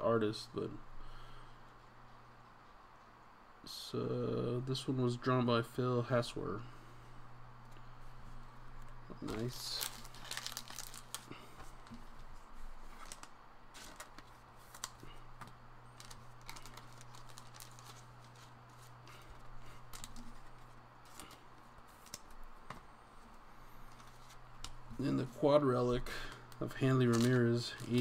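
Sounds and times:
low electrical hum: 0.0 - 28.0
trading cards being handled: 7.7 - 28.0.

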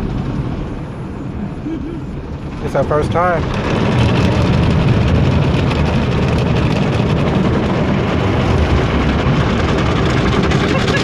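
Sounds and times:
car wash spraying water: 0.0 - 11.0.

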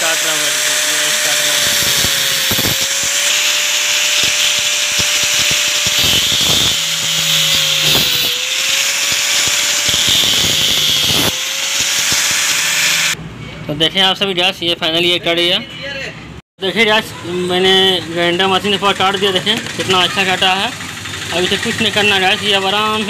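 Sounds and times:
angle grinder cutting metal: 0.0 - 13.2.

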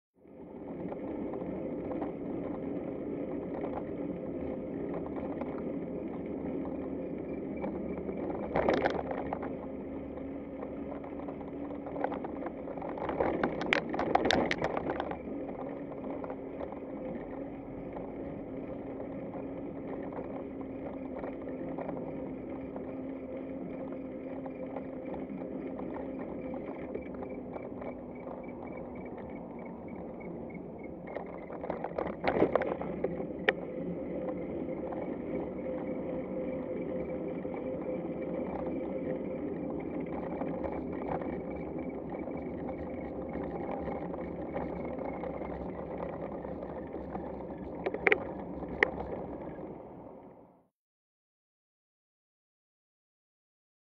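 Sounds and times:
clatter: 0.2 - 50.5
cargo bike rolling on pavement: 0.2 - 50.7
constant hum: 0.2 - 50.7.

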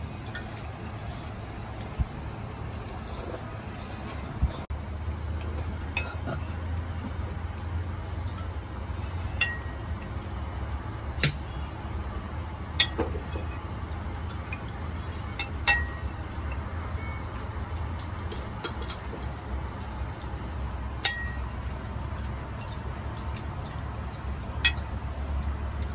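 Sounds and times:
steady low hum: 0.0 - 25.9
spoons clinking against porcelain bowls: 14.5 - 17.5, 21.0 - 21.5.

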